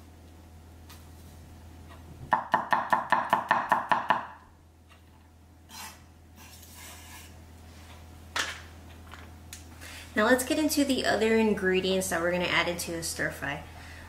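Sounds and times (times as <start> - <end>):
knife chopping on wooden board: 2.3 - 4.4.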